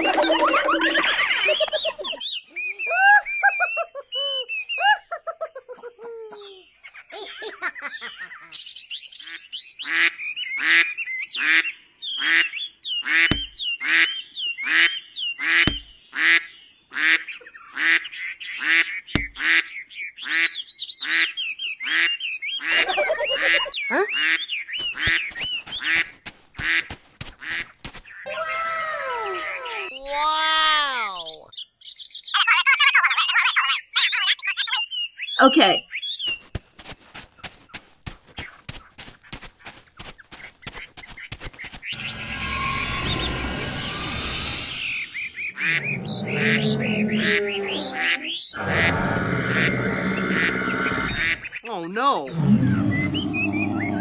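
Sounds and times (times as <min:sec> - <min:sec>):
high chirping calls: 0:00.0 - 0:05.2, 0:06.3 - 0:26.2, 0:31.0 - 0:36.7, 0:37.4 - 0:54.0
duck quacking: 0:14.7 - 0:24.4.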